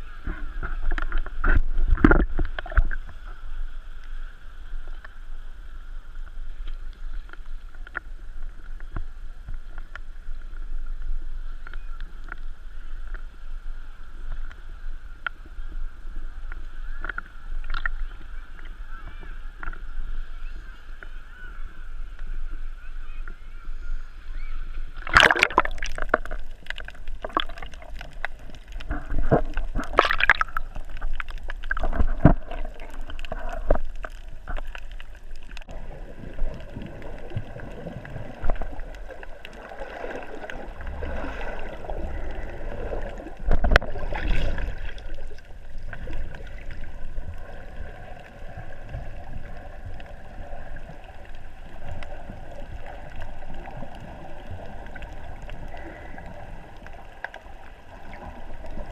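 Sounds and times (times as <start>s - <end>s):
water splashing and sloshing: 0.0s - 5.4s, 24.7s - 58.9s
muffled underwater gurgling: 15.0s - 58.9s.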